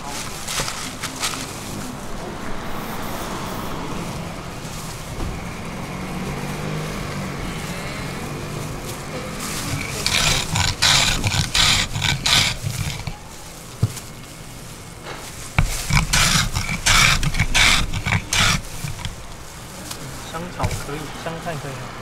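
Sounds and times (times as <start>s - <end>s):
wooden plane scraping brittle: 0.0s - 1.8s, 8.8s - 13.4s, 15.5s - 19.5s, 20.3s - 21.0s
low engine drone: 0.0s - 13.2s.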